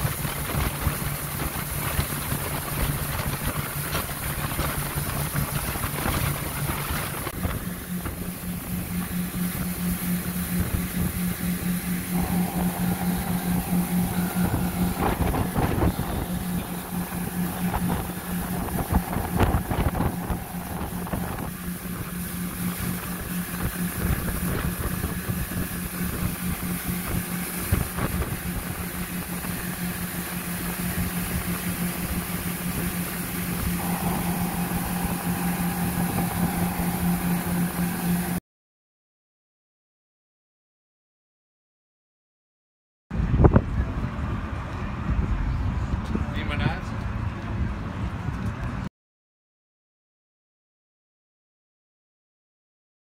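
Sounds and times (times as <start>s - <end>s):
wind rumbling on microphone: 0.0s - 11.4s, 12.2s - 38.3s, 43.1s - 48.9s
boat motor humming: 0.0s - 38.4s.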